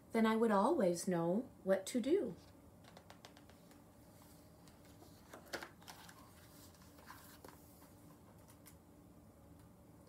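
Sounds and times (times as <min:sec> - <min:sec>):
paper page rustling: 0:03.5 - 0:08.8.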